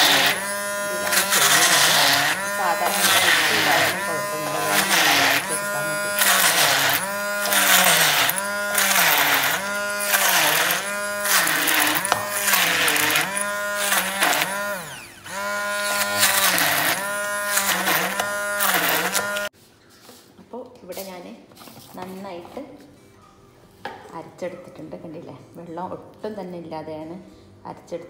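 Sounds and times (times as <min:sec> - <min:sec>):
hand blender grinding beans: 0:00.0 - 0:19.5.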